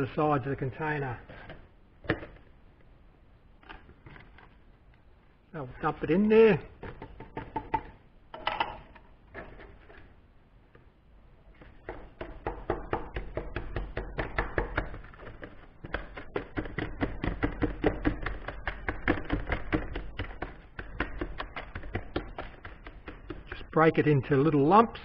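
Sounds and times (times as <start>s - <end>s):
tool knocking and scraping tub: 11.6s - 23.8s.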